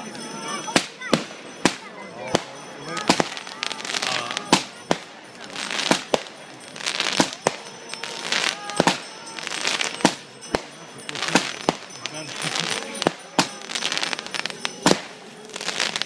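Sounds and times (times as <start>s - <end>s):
fireworks shells bursting: 0.7s - 16.0s
hissing crackle of sparks: 11.1s - 16.0s.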